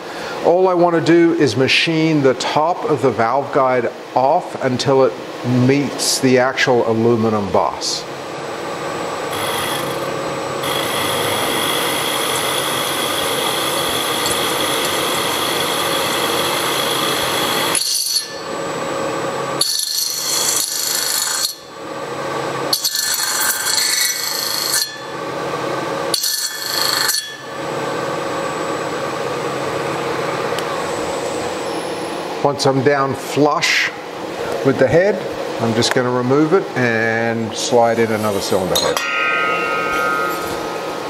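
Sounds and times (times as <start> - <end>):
milling machine cutting metal: 8.9 - 18.9, 19.6 - 21.7, 22.7 - 25.1, 26.1 - 27.6, 38.2 - 40.8.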